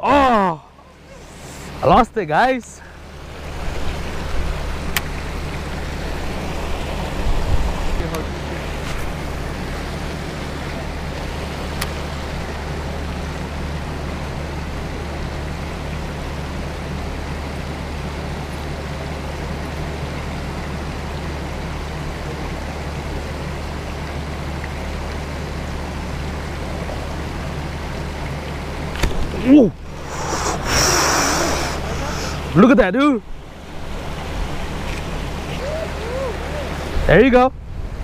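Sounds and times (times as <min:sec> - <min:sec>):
steady low rumble: 0:00.6 - 0:38.0
even hiss: 0:01.1 - 0:03.5, 0:29.3 - 0:33.2.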